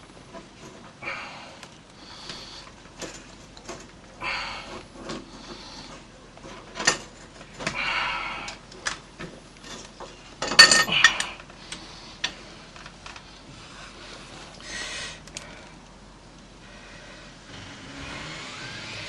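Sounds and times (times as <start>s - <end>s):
metal tools clinking and knocking: 9.6s - 11.4s.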